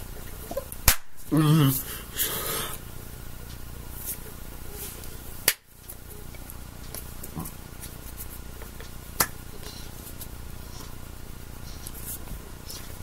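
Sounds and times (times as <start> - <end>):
wavering vocal hum: 0.4 - 2.9
hands slapping and rubbing: 4.9 - 5.7, 7.8 - 11.0.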